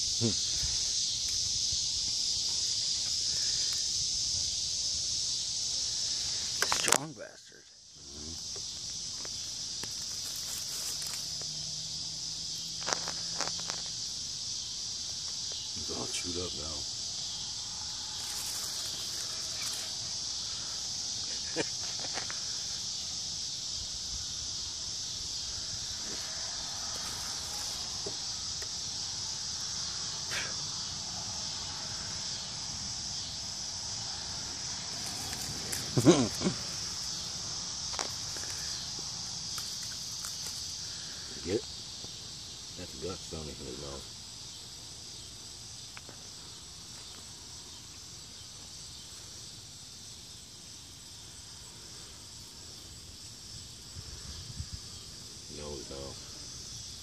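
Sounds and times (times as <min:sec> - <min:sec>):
field insects trilling: 0:00.0 - 0:57.0
faint rustles from plants: 0:08.1 - 0:11.5, 0:18.1 - 0:20.9, 0:26.0 - 0:28.0, 0:34.9 - 0:42.2.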